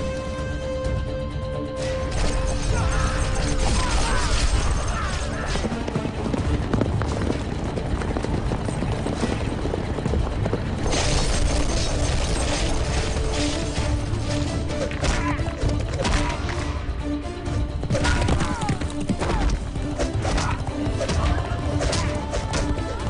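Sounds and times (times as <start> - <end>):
film battle music: 0.0 - 23.0
soldiers shouting: 2.7 - 5.9, 17.9 - 23.0
horses' hooves: 5.0 - 10.9, 17.7 - 19.8.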